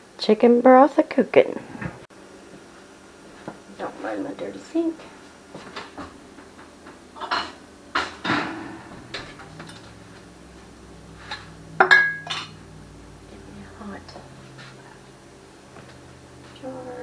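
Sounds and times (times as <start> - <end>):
glass jars clinking: 11.8 - 12.6.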